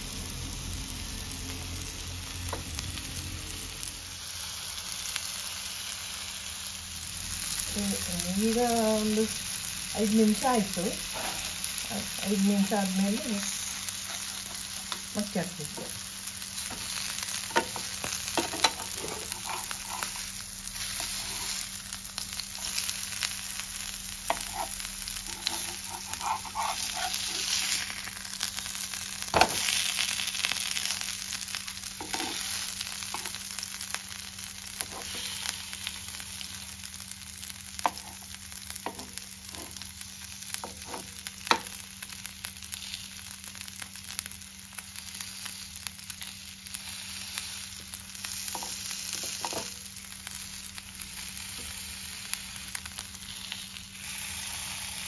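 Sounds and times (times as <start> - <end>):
fish sizzling in oil: 0.0 - 55.0
metal spatula clicks and scrapes: 24.3 - 27.5.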